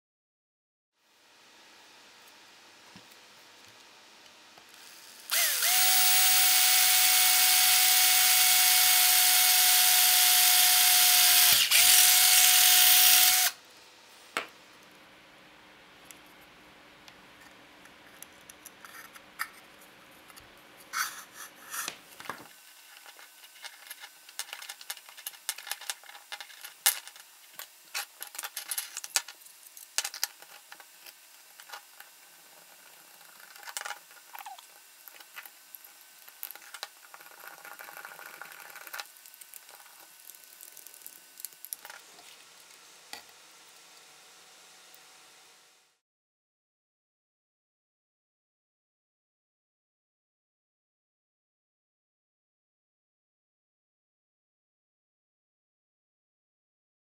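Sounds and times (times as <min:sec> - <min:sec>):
plastic parts clicking and rustling: 0:22.2 - 0:31.9.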